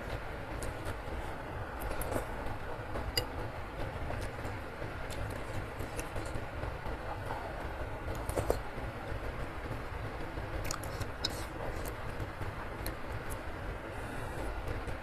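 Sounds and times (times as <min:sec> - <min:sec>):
chewing: 0:10.6 - 0:12.0.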